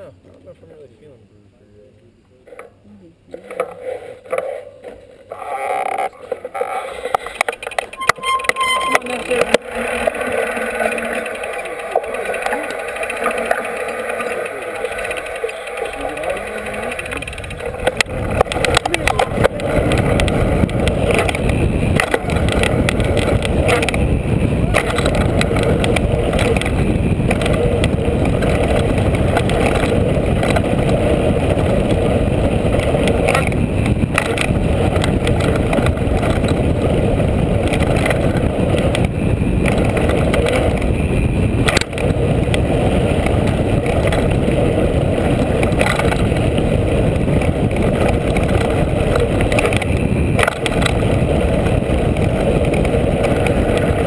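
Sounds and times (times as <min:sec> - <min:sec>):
bike rattling over bumps: 0:02.5 - 0:54.0
wind on microphone: 0:14.5 - 0:54.0.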